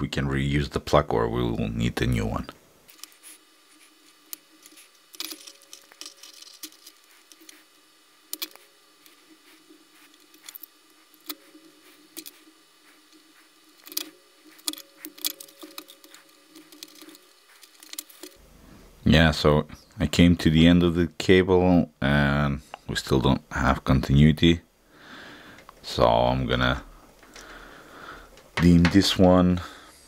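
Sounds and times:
handling noises: 2.8s - 18.6s, 26.8s - 29.5s.

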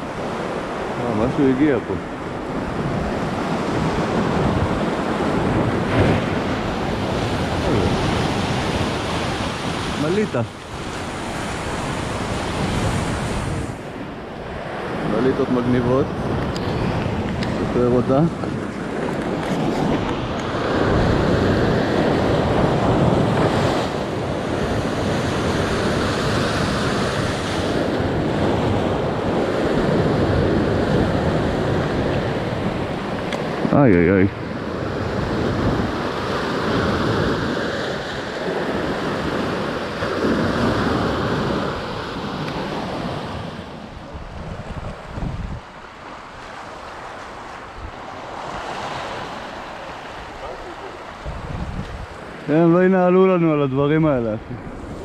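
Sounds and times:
waves breaking on rocks: 0.0s - 55.0s.

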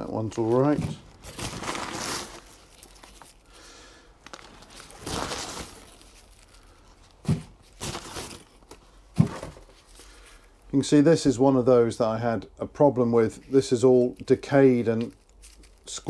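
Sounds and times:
garlic skins crinkling: 0.0s - 9.0s, 13.0s - 16.0s.

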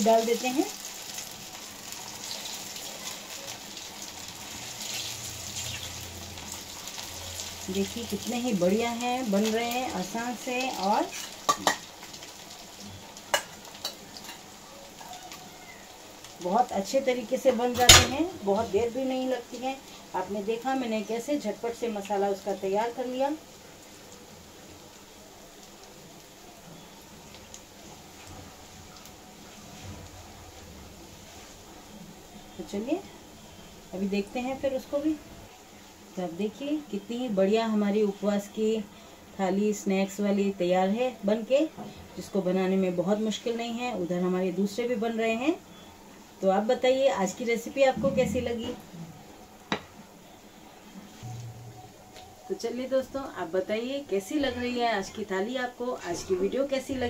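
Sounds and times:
oil sizzling while deep-frying: 0.0s - 57.0s.

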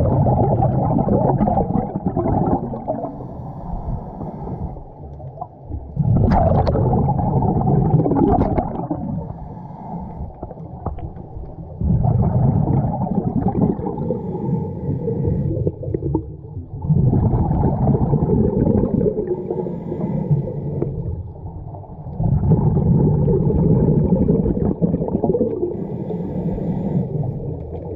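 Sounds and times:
diver exhaling gurgling bubbles: 0.0s - 27.9s
diver inhaling through regulator: 1.9s - 5.0s, 8.7s - 10.7s, 12.9s - 16.2s, 18.8s - 21.2s, 25.4s - 27.9s.

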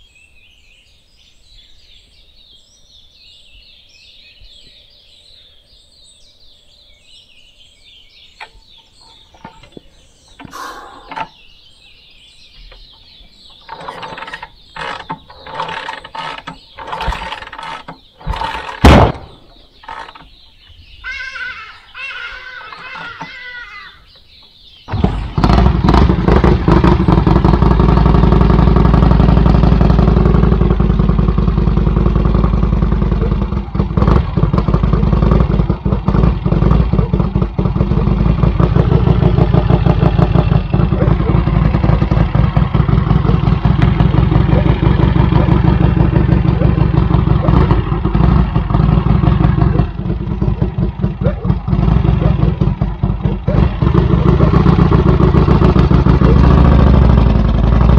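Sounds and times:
motorcycle engine running: 8.1s - 20.8s, 24.3s - 57.9s.

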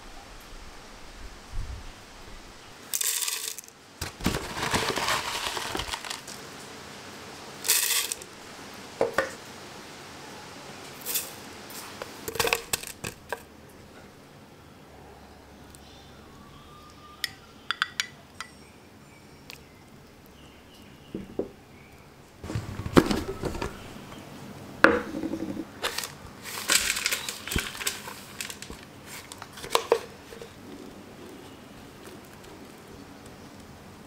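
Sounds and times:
crumbly mixture scraping and crunching: 3.0s - 6.6s, 25.6s - 33.7s.

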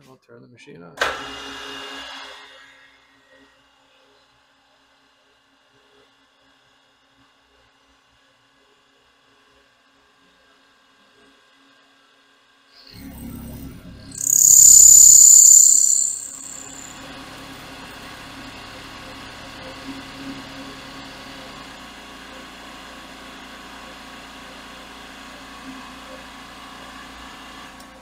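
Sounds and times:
spindle hum: 13.0s - 16.9s.

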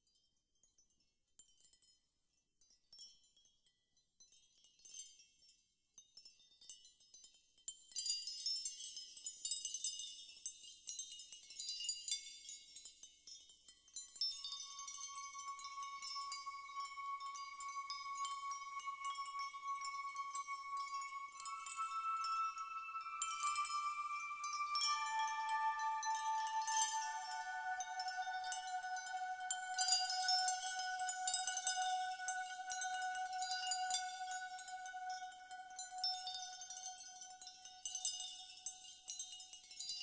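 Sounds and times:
wind chimes tinkling: 0.1s - 40.0s
held high tone: 14.7s - 35.4s.

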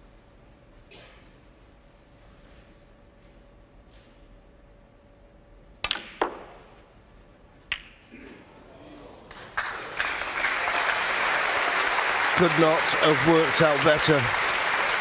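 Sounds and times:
snooker balls clicking: 5.8s - 6.7s
audience applause: 9.3s - 15.0s.

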